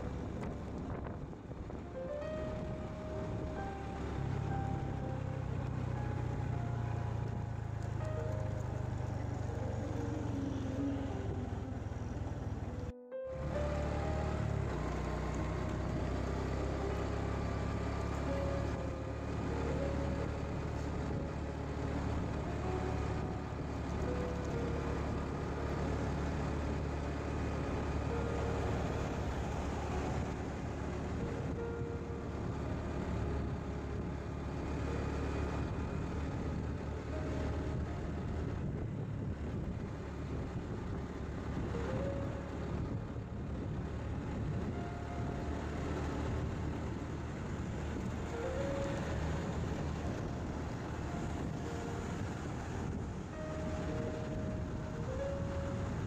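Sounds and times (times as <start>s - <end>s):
wind rush: 0.0s - 4.6s, 35.6s - 56.0s
motorcycle engine: 0.0s - 55.3s.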